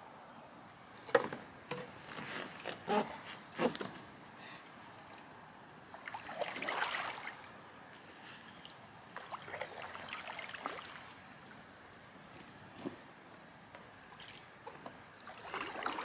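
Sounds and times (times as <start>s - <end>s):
paddle dipping through water: 6.0s - 7.5s, 8.6s - 11.2s, 14.1s - 16.0s.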